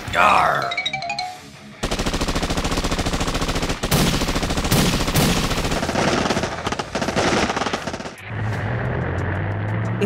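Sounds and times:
machine-gun fire: 0:01.8 - 0:08.2.

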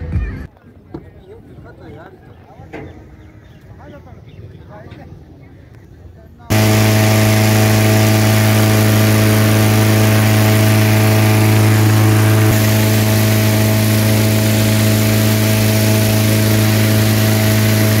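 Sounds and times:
small engine humming: 0:06.5 - 0:18.0.

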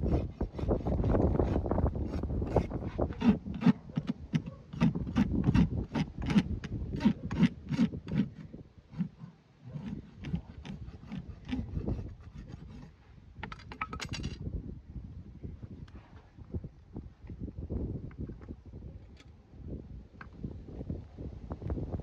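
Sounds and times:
rasp filing hoof: 0:00.0 - 0:13.0.

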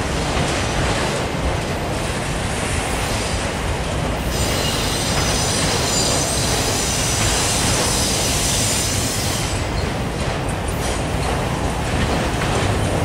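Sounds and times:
steel wheels rumbling on rail: 0:00.0 - 0:13.0
high wheel squeal: 0:04.3 - 0:09.8.

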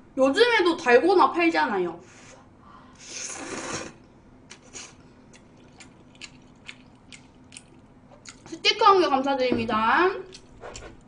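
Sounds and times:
person slurping noodles: 0:03.0 - 0:04.0
wet chewing mouth clicks: 0:04.5 - 0:08.5.

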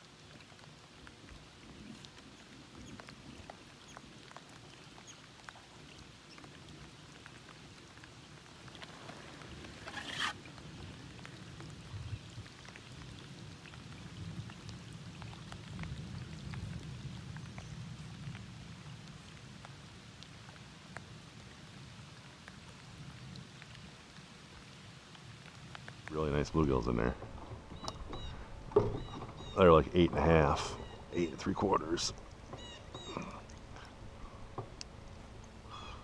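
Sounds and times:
light rain pattering: 0:00.0 - 0:36.0.

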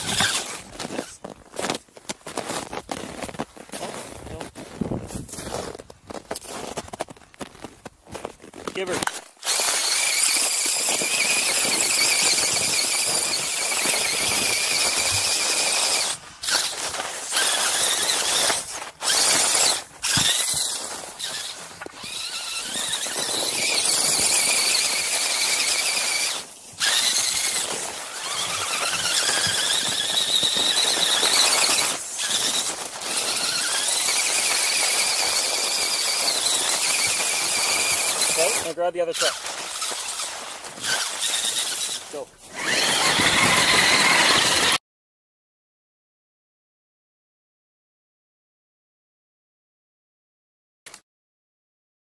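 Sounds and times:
electric motor whining: 0:00.0 - 0:00.7, 0:09.4 - 0:44.8.

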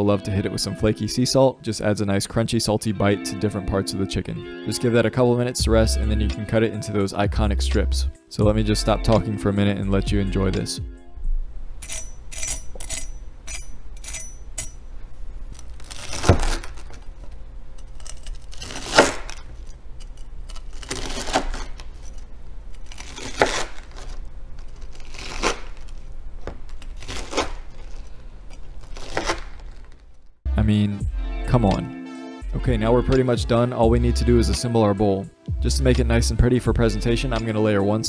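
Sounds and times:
knife slicing crunchy crust: 0:15.6 - 0:17.2, 0:17.8 - 0:26.0, 0:26.6 - 0:28.0, 0:28.8 - 0:29.9.

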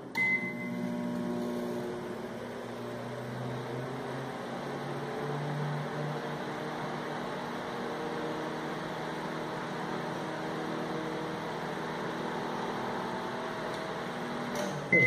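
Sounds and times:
microwave oven humming: 0:00.0 - 0:03.2.

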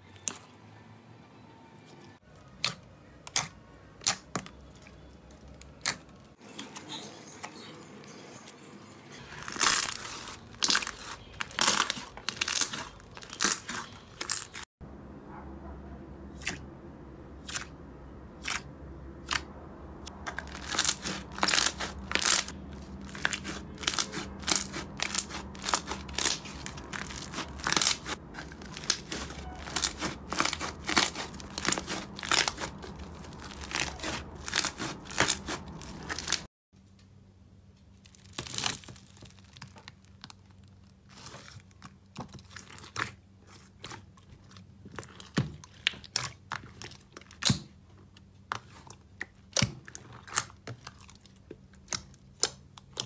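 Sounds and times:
slime crackling and popping: 0:09.3 - 0:14.6, 0:20.2 - 0:36.5, 0:37.9 - 0:43.2.

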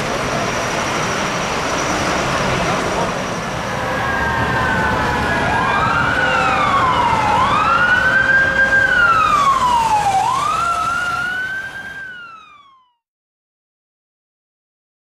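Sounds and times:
traffic rumble: 0:00.0 - 0:12.7
siren wailing: 0:03.2 - 0:13.0.

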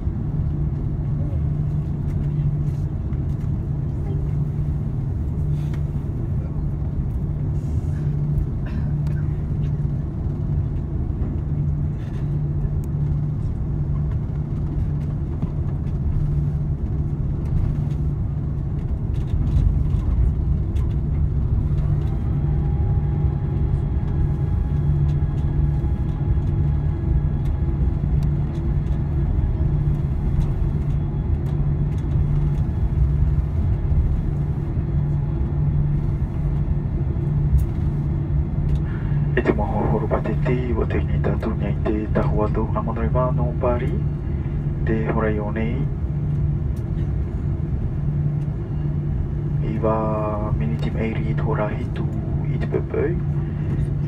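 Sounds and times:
aircraft cabin rumble: 0:00.0 - 0:54.0
thin steady whine: 0:19.2 - 0:54.0.

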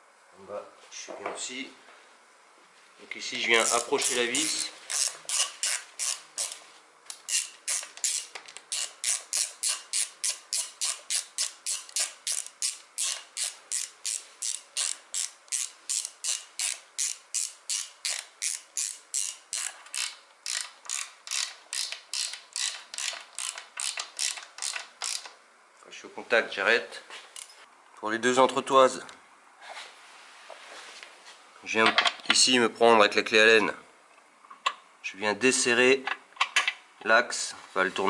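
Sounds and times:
ratchet wrench clicking: 0:03.6 - 0:25.3.

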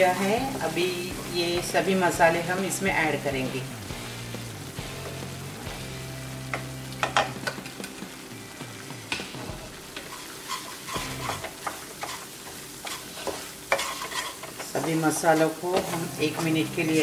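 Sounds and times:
soft sizzle of frying: 0:00.0 - 0:17.0
wooden spatula scraping a pan: 0:10.0 - 0:17.0.

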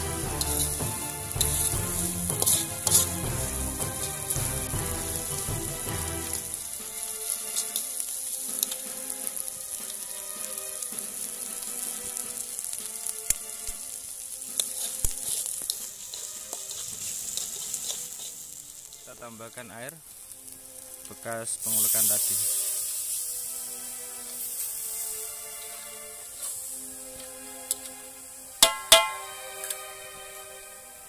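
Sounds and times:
metal spatula scraping wok: 0:00.0 - 0:13.2, 0:14.4 - 0:18.9
spice paste sizzling in wok: 0:00.0 - 0:31.0.

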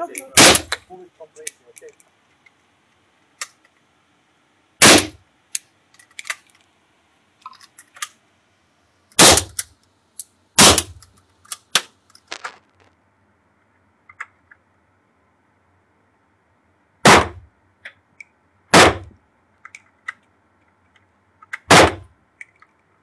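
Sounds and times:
faint sharp cracks and clicks: 0:00.1 - 0:03.9, 0:05.5 - 0:06.8, 0:09.1 - 0:13.0
rifle shots: 0:00.4 - 0:00.8, 0:04.8 - 0:05.2, 0:09.2 - 0:09.6, 0:10.6 - 0:11.0, 0:17.0 - 0:17.4, 0:18.7 - 0:19.1, 0:21.7 - 0:22.1.

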